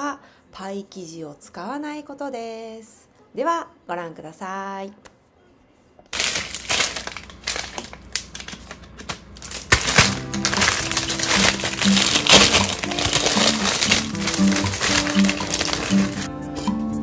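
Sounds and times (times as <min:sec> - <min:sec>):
plastic packaging crinkling: 0:06.1 - 0:16.3
plastic bag pulled open: 0:06.2 - 0:16.3
background music: 0:09.8 - 0:17.0.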